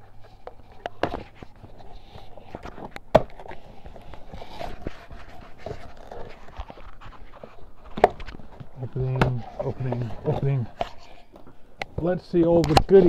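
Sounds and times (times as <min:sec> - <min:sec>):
box knocks and scrapes: 0:02.6 - 0:10.8.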